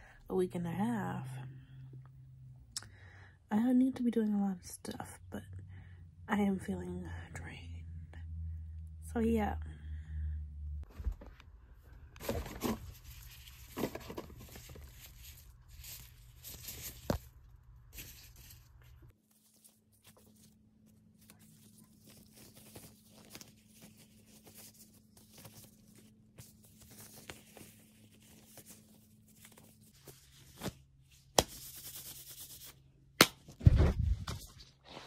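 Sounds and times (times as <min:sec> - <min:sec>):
clothing rustling: 0:12.2 - 0:32.7.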